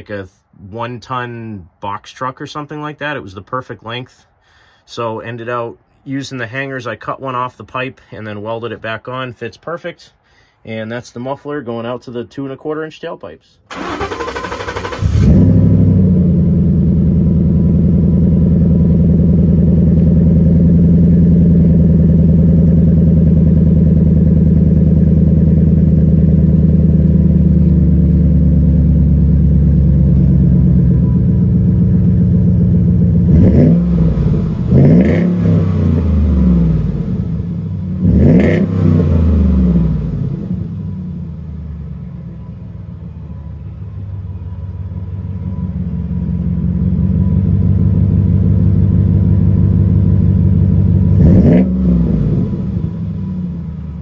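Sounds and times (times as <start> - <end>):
truck engine idling and revving: 13.7 - 54.0.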